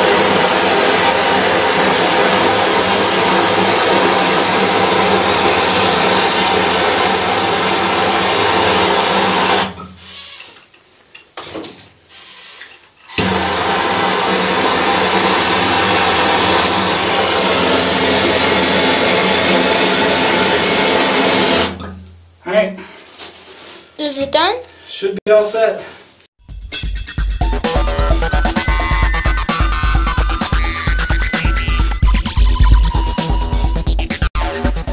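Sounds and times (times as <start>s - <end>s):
gas torch flame rushing: 0.0s - 10.6s, 13.1s - 21.8s.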